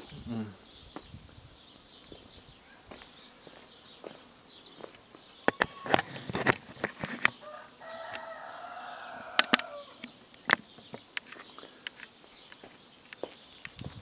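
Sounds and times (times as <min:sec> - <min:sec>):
footsteps on pavement: 0:00.9 - 0:01.2, 0:01.8 - 0:06.5, 0:11.4 - 0:14.0
rooster crowing: 0:07.4 - 0:10.1.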